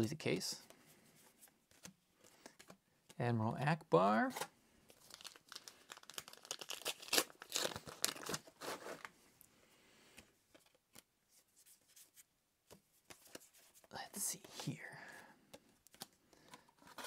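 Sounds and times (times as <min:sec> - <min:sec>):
foil wrapper crinkling and tearing: 0:04.9 - 0:09.1.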